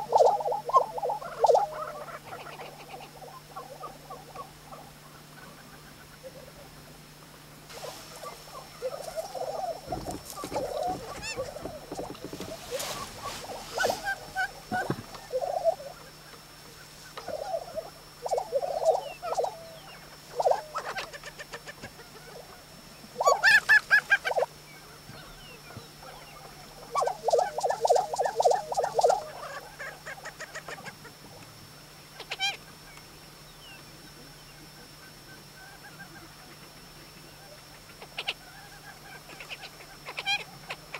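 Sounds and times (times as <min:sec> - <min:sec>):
birds giving stuttering display calls: 0:00.0 - 0:06.4, 0:07.8 - 0:22.5, 0:23.1 - 0:24.6, 0:25.2 - 0:31.0, 0:37.8 - 0:40.9
bird clucking notes: 0:00.0 - 0:06.8, 0:07.7 - 0:24.5, 0:25.1 - 0:31.2.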